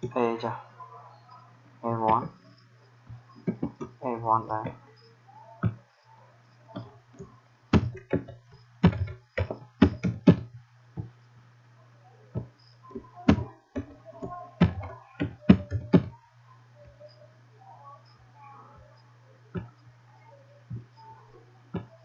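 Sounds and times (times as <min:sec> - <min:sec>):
keyboard typing clicks: 0:06.8 - 0:10.5, 0:13.1 - 0:16.1.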